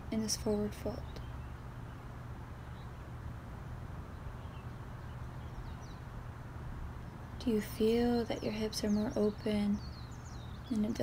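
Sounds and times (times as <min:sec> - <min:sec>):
steady low rumble: 0:00.0 - 0:11.0
faint bird chirps: 0:07.0 - 0:11.0.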